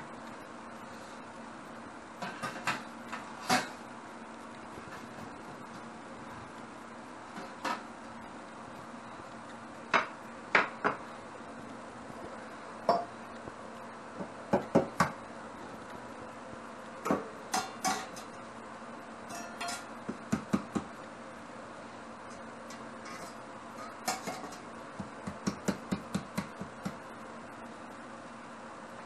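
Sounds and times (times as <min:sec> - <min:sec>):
metal mixing bowls clinking: 0:19.3 - 0:19.9.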